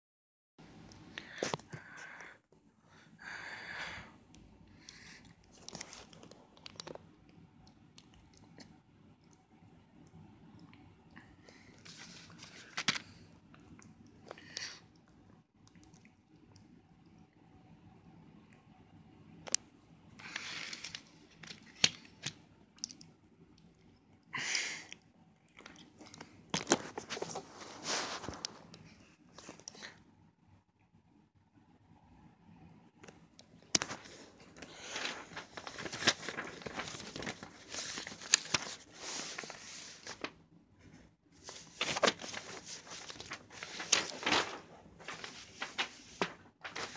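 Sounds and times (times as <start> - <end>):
plastic wrapping crinkling and tearing: 33.8 - 40.3, 41.4 - 46.9.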